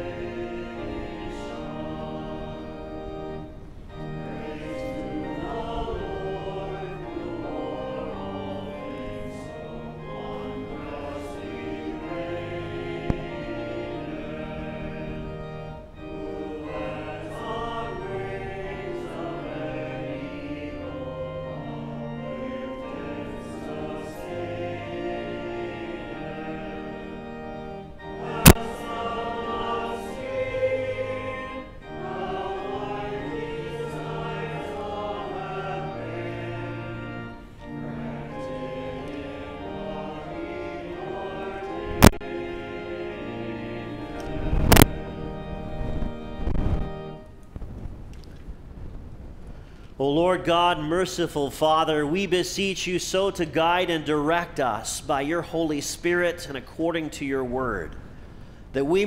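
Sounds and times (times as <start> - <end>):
congregation singing a hymn: 0.0 - 47.4, 49.9 - 59.0
organ accompaniment: 0.0 - 59.0.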